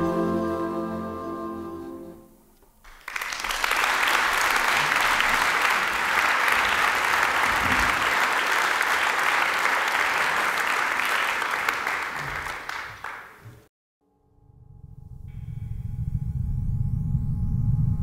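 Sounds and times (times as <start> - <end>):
audience applauding: 2.8 - 13.7.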